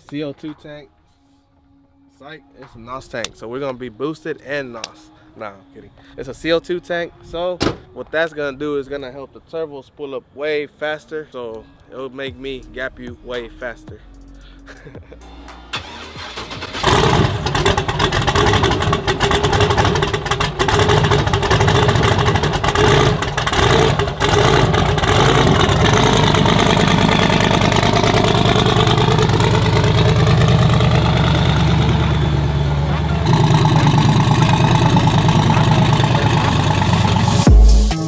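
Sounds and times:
pickup truck engine starting and idling: 15.2 - 37.9.

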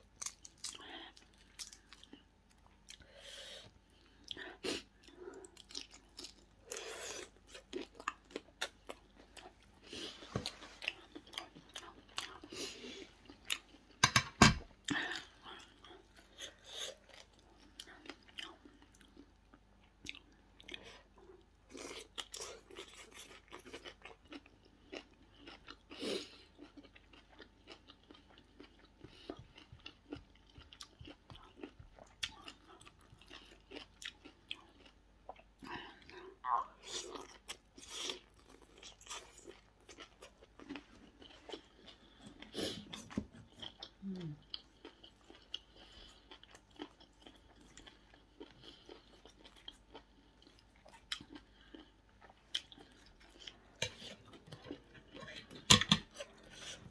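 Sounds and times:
person chewing and crunching: 0.0 - 56.9
cutlery tapping a plate: 14.0 - 14.6.

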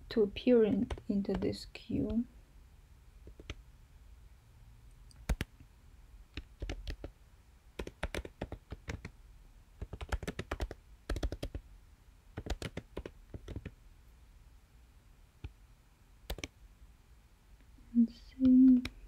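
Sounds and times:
keyboard typing: 0.5 - 2.2, 3.2 - 3.6, 5.1 - 5.5, 6.3 - 7.2, 7.8 - 9.1, 9.8 - 11.6, 12.4 - 13.8, 16.3 - 16.5.

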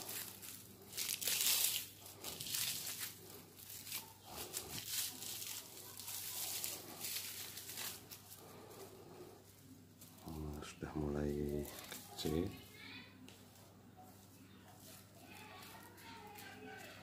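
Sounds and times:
plastic strips crinkling: 0.0 - 17.0.

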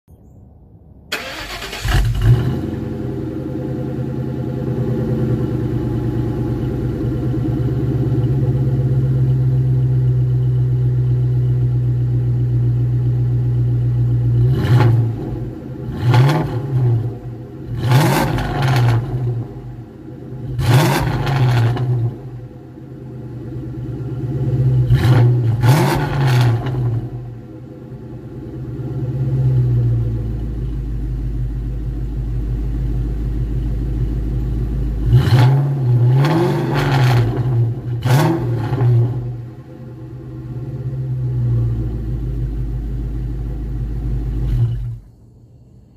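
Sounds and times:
car engine starting and idling: 0.1 - 45.9
engine revving: 1.1 - 6.5, 14.1 - 22.6, 23.6 - 27.6, 35.0 - 41.7, 44.3 - 45.1.

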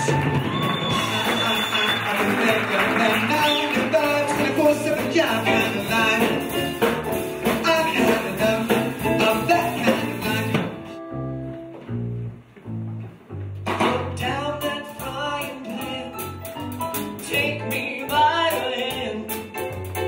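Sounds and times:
person singing: 0.0 - 11.0, 13.8 - 16.4, 17.1 - 19.6
bass and guitar notes: 0.0 - 20.0
swing band music: 0.0 - 20.0.

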